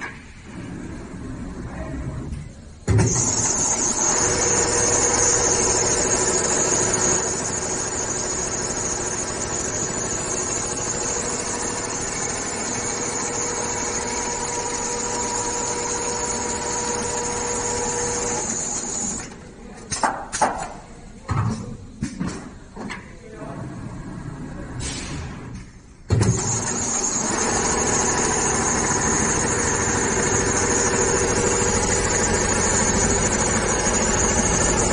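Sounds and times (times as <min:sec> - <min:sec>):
sewing machine running with whine: 0:03.0 - 0:19.3, 0:26.2 - 0:34.9.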